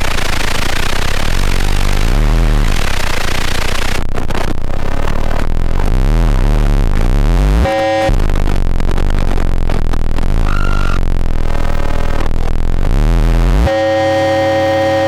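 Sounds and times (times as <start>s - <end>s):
warbling pulsing low tones: 0.0s - 13.7s
harsh electronic noise: 0.0s - 15.0s
chord of steady tones: 7.2s - 8.4s, 13.0s - 15.0s.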